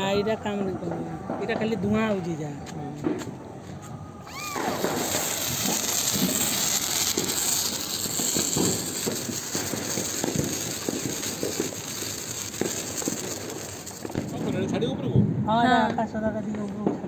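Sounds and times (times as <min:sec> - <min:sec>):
sparklers hissing and crackling: 0:03.0 - 0:15.2.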